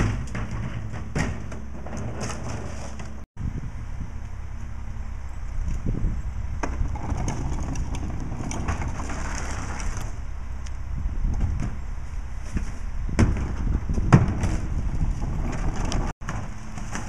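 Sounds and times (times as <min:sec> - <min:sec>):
diesel truck engine rumbling: 0:02.9 - 0:17.0
plastic cart clattering on pavement: 0:06.6 - 0:10.1, 0:13.2 - 0:17.0.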